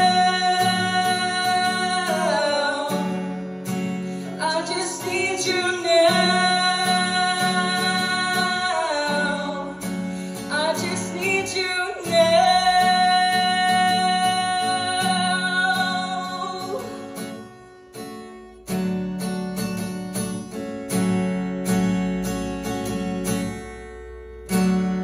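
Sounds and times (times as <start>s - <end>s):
acoustic guitar strumming: 0.0s - 25.0s
wordless singing: 4.2s - 9.8s.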